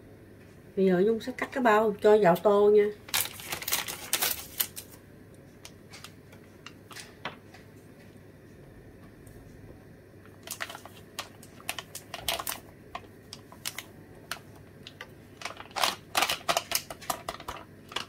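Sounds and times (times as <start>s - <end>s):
paper bag crinkling: 3.0s - 5.0s, 10.3s - 18.0s.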